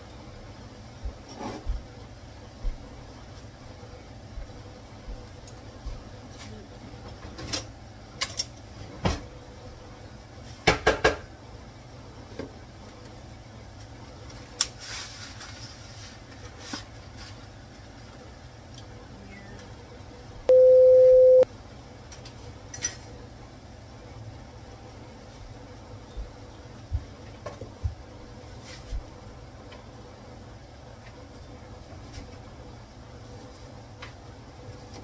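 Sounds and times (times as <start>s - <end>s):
electronic beep: 20.5s - 21.4s.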